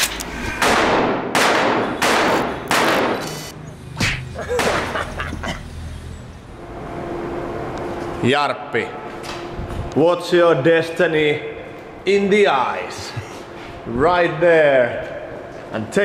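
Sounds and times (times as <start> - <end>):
pistol shots ringing: 0.6 - 3.2
quick sharp hits: 0.6 - 5.0.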